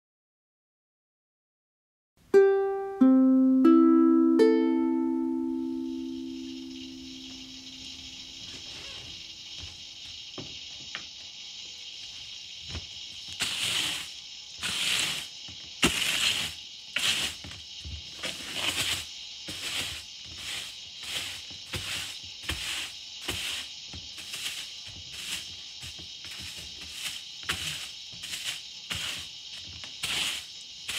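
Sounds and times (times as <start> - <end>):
broom sweeping wooden floor: 6.6 - 30.9
footstep knocks: 8.4 - 11.3.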